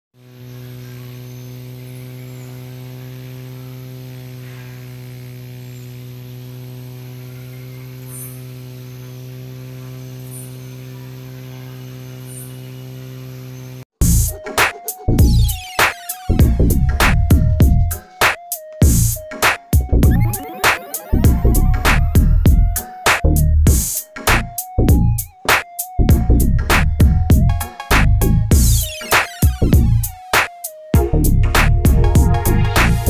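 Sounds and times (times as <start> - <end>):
small fan motor humming: 0.2 - 13.9
loud electronic music: 18.8 - 26.2, 28.6 - 33.0.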